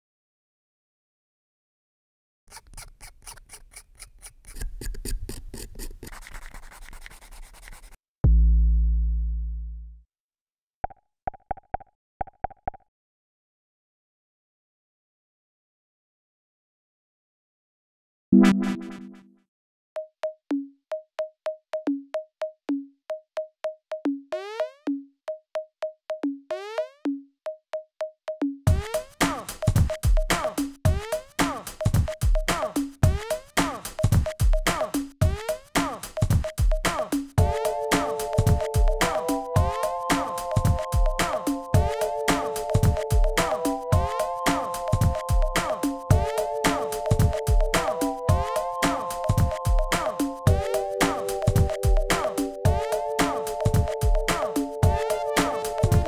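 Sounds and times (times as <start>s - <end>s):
knife blade scraping plastic: 2.5s - 8.0s
sanding stick rubbing plastic: 2.5s - 8.0s
deep electronic bass note: 8.2s - 10.0s
electronic percussion beat: 25.6s - 56.0s.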